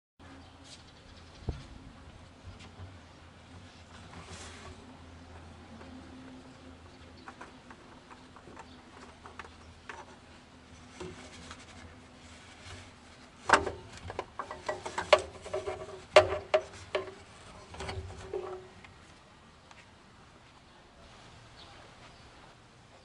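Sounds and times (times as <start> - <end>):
gloved hand rubbing and scraping: 9.8 - 13.5
parts knocking against engine: 13.5 - 18.6.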